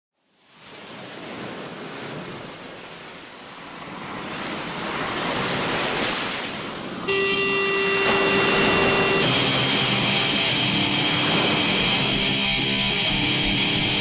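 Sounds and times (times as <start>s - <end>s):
buzzy held guitar tone: 7.1s - 14.0s
rushing noise: 7.1s - 14.0s.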